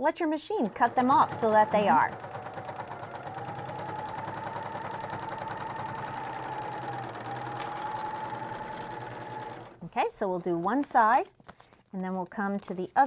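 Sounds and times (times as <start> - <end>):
serger sewing machine whirring: 0.2 - 9.9.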